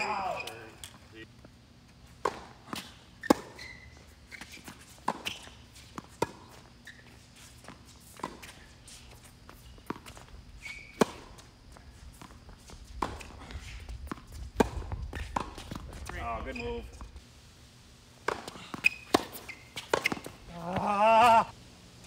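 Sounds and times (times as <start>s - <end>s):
tennis ball struck by rackets: 2.2s - 3.6s, 14.1s - 15.9s, 18.2s - 20.9s
ball bouncing on hard court: 14.1s - 16.6s, 18.2s - 21.0s.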